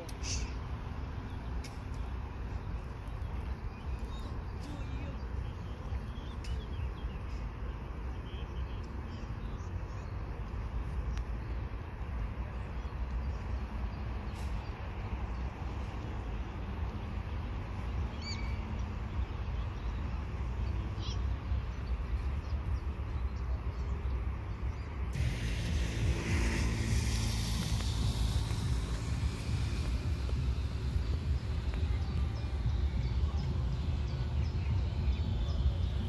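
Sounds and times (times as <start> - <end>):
bird chirping: 17.8 - 36.0
distant freight train rumbling: 25.2 - 36.0.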